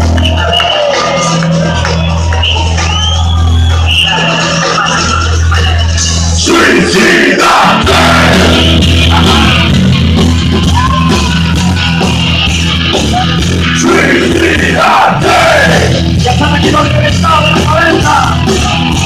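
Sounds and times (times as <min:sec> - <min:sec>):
live rock band playing: 0:00.0 - 0:06.6, 0:07.4 - 0:19.0
heavy bass line: 0:00.0 - 0:19.0
singer yelling: 0:06.4 - 0:09.8, 0:13.2 - 0:18.9.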